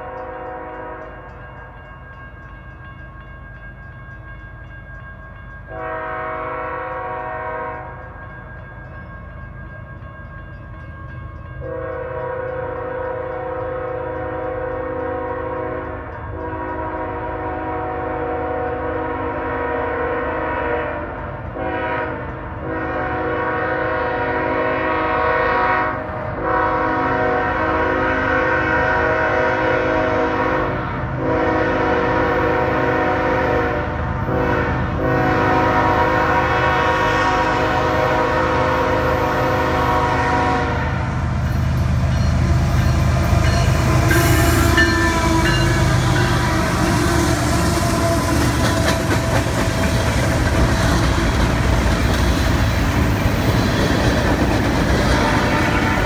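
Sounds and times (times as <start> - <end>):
locomotive air horn blasts: 0.0 - 1.2, 5.7 - 7.9, 11.6 - 41.1, 43.4 - 49.0, 55.1 - 56.0
train rumbling: 0.0 - 56.0.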